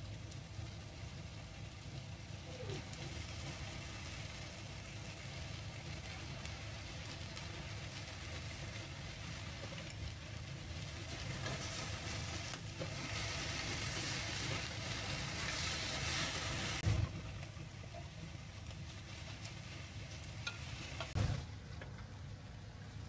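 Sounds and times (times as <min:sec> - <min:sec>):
food sizzling in frying pan: 0:00.0 - 0:23.0
chopsticks stirring: 0:06.0 - 0:16.8, 0:17.6 - 0:21.2.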